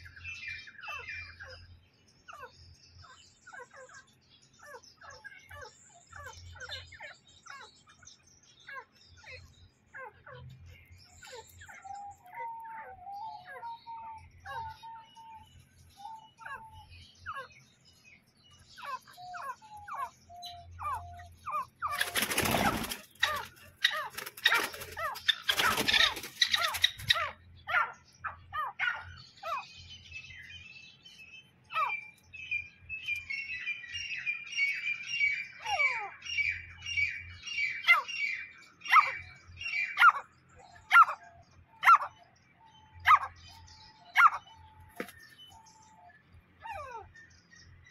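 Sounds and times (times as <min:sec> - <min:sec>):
francolins chirping: 0:00.0 - 0:47.9
wings flapping: 0:21.9 - 0:27.2, 0:45.0 - 0:45.2.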